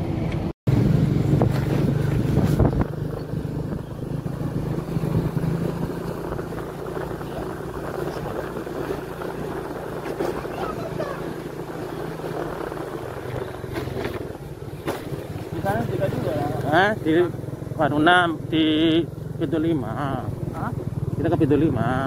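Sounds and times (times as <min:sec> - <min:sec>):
motorcycle engine running: 0:00.0 - 0:22.0
wind and road noise: 0:00.0 - 0:22.0.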